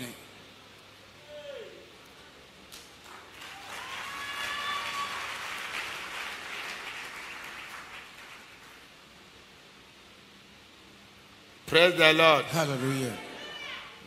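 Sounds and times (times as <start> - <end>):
congregation applauding: 3.0 - 9.0.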